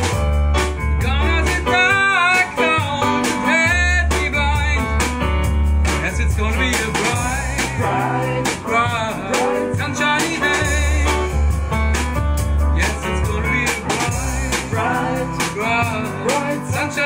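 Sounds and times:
deep bass line: 0:00.0 - 0:17.0
drum kit beat: 0:00.0 - 0:17.0
guitar: 0:00.0 - 0:17.0
sung vocal: 0:01.0 - 0:05.0, 0:06.0 - 0:11.5, 0:12.7 - 0:17.0.

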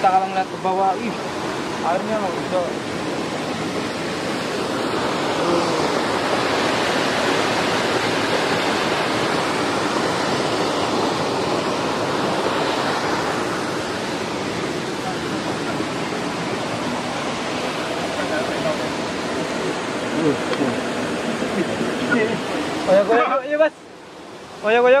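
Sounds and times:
waterfall roaring: 0:00.0 - 0:25.0.

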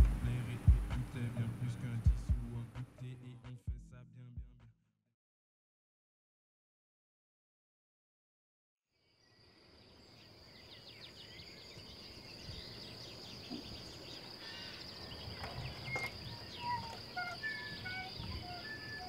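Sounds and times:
small birds chirping: 0:09.0 - 0:19.0
high-pitched insect trill: 0:09.4 - 0:19.0
whistled bird notes: 0:10.1 - 0:19.0.

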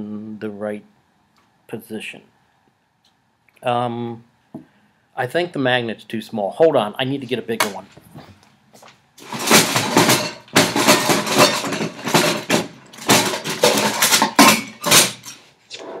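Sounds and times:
objects clattering: 0:09.2 - 0:16.0.

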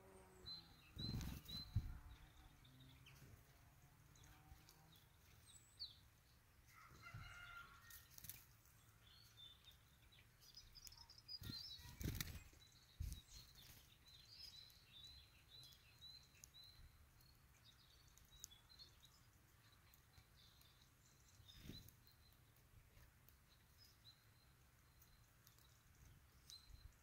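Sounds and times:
high bird chirps: 0:00.4 - 0:03.2, 0:09.1 - 0:22.5
small birds' wings flapping: 0:01.0 - 0:02.0, 0:07.9 - 0:08.6, 0:11.4 - 0:14.0, 0:21.4 - 0:22.0.

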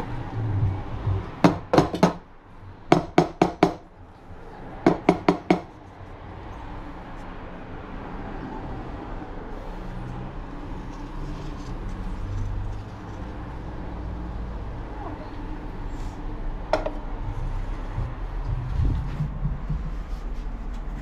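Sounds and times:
metal milk jug knocking on counter: 0:01.4 - 0:02.2.

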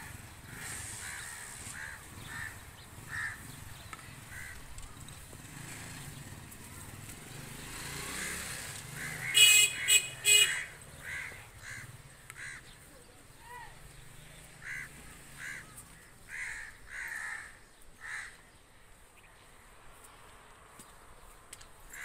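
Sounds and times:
loud honks: 0:09.0 - 0:11.4.

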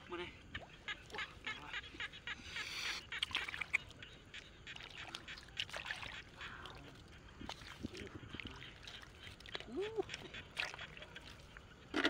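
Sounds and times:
water splashing: 0:03.0 - 0:12.0.

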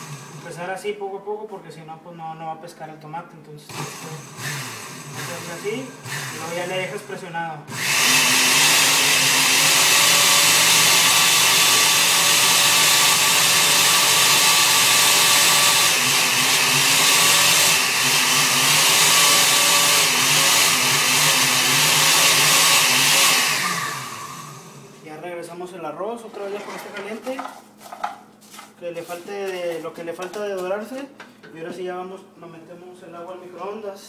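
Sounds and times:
blender motor whirring: 0:00.0 - 0:00.7, 0:03.7 - 0:25.1.

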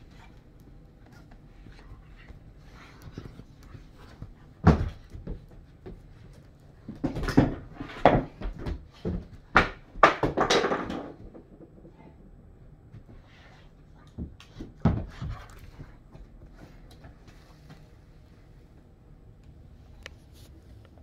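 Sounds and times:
bumps and knocks of toys: 0:06.9 - 0:12.1.

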